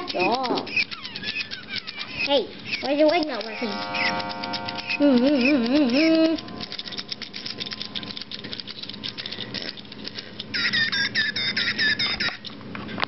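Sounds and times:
toy mechanism clicking rattle: 0:00.0 - 0:12.6
warbling electronic tone: 0:03.5 - 0:08.2.

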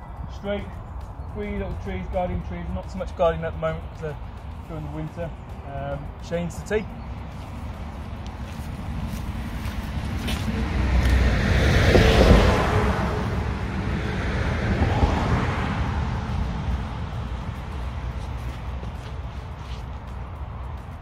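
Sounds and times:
car passing by: 0:07.2 - 0:21.0.

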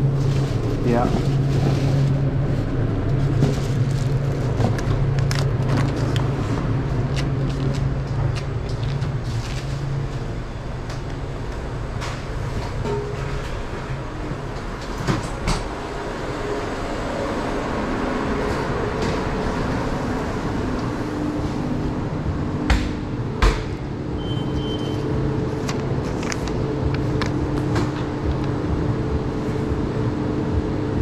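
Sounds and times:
kitchen equipment hum: 0:00.0 - 0:31.0
short high beep: 0:24.2 - 0:25.0.

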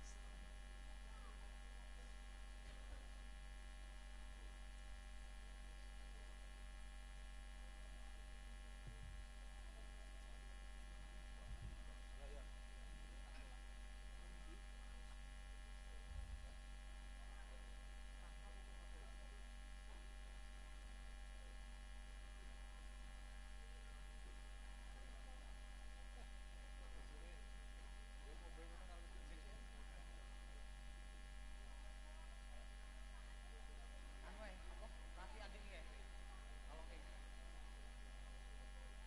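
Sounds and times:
low electrical hum: 0:00.0 - 0:39.0
soft low thumps: 0:08.8 - 0:09.3, 0:11.4 - 0:12.0.

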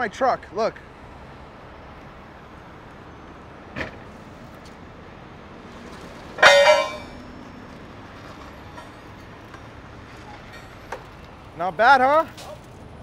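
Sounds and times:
loud metallic clang: 0:06.4 - 0:07.2.

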